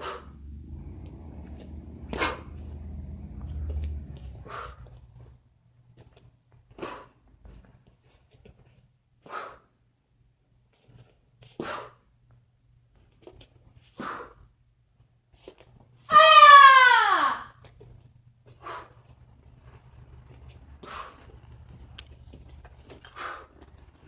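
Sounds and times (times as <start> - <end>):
sharp breath exhalations: 4.4 - 4.9.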